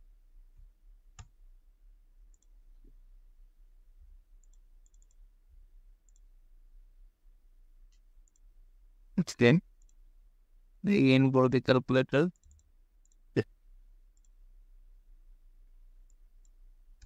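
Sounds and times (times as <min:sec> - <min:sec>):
keyboard and mouse clicks: 0:04.4 - 0:05.2, 0:12.3 - 0:13.2.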